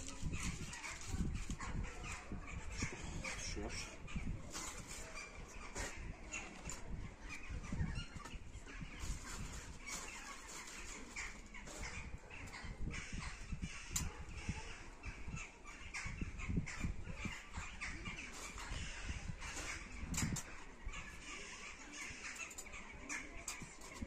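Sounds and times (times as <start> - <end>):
twigs crackling in a stove: 9.0 - 11.8.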